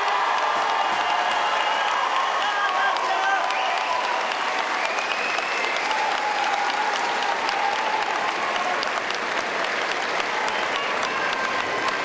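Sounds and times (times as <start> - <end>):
crowd applauding: 0.0 - 12.0.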